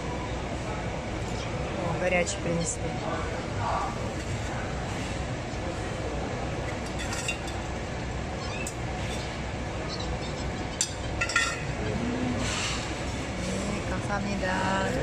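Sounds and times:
clinks of metal and tableware: 6.8 - 7.7, 10.8 - 11.7.

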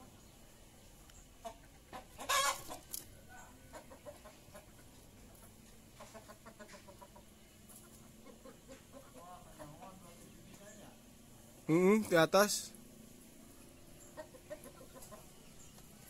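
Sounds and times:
chickens clucking: 0.0 - 16.0
chicken squawk: 1.4 - 2.8, 14.1 - 15.4.

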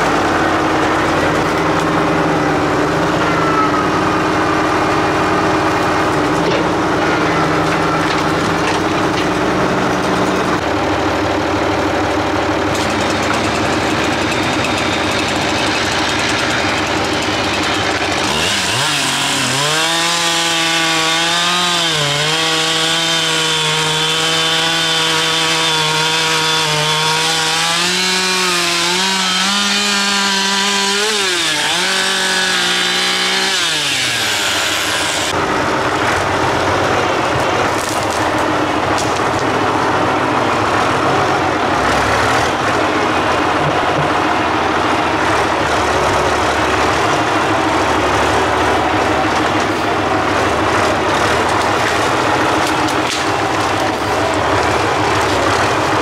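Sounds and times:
tractor diesel engine running: 0.0 - 56.0
chainsaw cutting log: 12.1 - 35.4, 37.4 - 39.6, 40.6 - 56.0.

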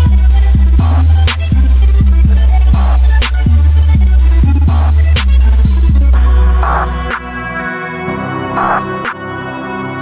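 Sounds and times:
bass-heavy drum beat: 0.0 - 7.3.

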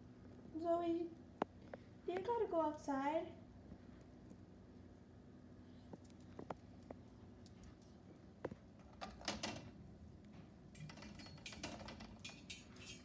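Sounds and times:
dog claws clicking on tile: 5.9 - 9.4.

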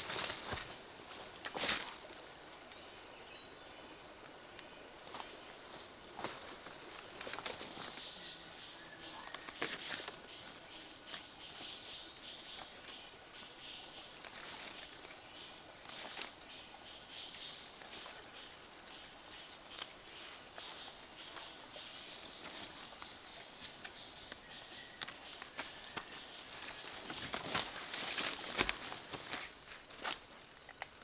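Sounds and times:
insect chorus: 0.0 - 31.0
plants snapping and leaves rustling: 19.4 - 20.2, 22.4 - 31.0.

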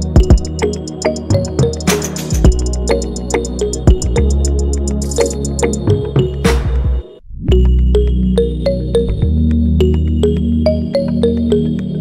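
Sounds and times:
steady ticking beat: 0.0 - 6.4.

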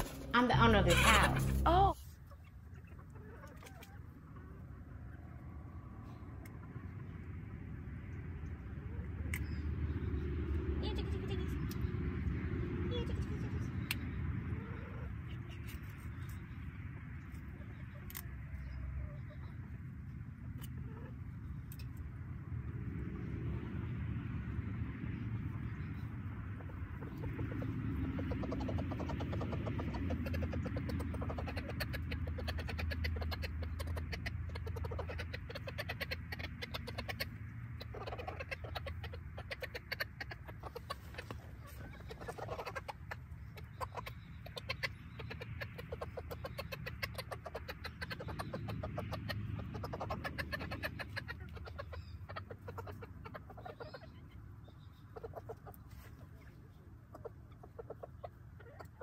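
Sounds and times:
chickens clucking: 0.0 - 22.4, 25.4 - 59.0.

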